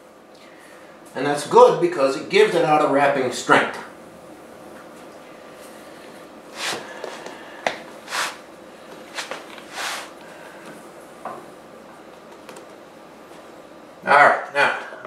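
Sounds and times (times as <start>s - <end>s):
hands rolling dough swishes: 6.5s - 10.2s.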